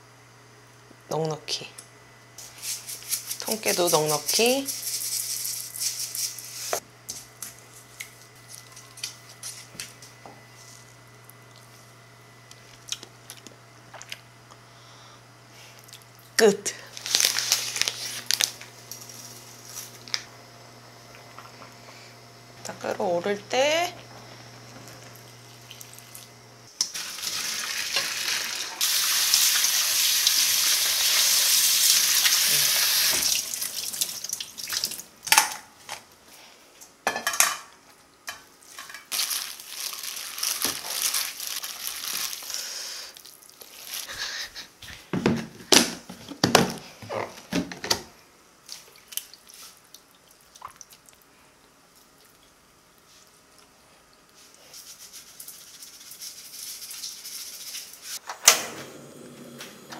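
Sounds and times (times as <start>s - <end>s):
water running: 22.6s - 35.1s.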